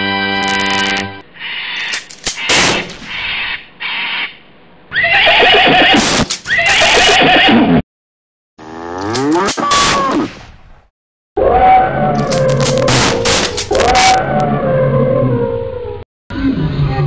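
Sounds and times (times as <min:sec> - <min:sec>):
horse whinnying: 0:04.9 - 0:07.8.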